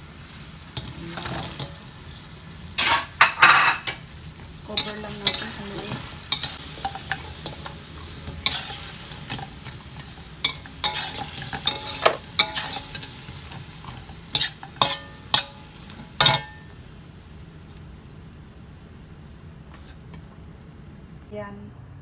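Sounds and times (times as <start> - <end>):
faint sizzle: 0.0 - 21.9
spatula scraping a wok: 0.8 - 1.9, 4.7 - 16.6.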